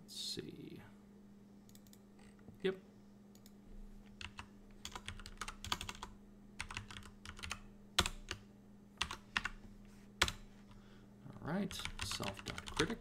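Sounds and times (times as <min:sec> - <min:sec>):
typing on a keyboard: 0:04.2 - 0:08.4, 0:11.7 - 0:13.0.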